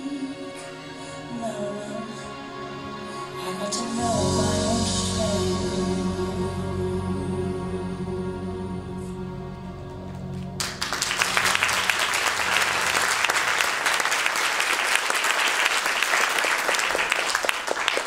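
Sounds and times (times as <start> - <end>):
held music chord: 0.0 - 13.6
audience applause: 10.1 - 18.0.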